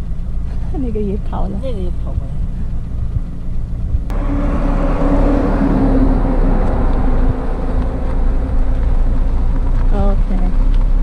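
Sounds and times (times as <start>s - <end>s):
vehicle engine: 0.0s - 11.0s
wind rumble on microphone: 0.0s - 11.0s.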